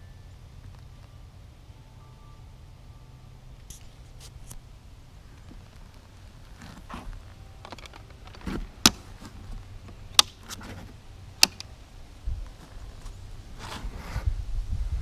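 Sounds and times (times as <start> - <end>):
soft rustling handling noise: 3.7 - 11.0, 12.4 - 14.3
sharp clicks: 11.4 - 11.7.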